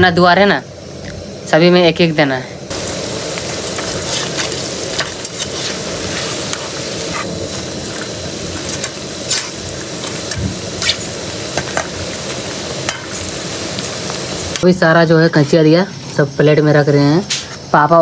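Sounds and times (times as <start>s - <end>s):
fritters sizzling in hot oil: 2.7s - 15.8s.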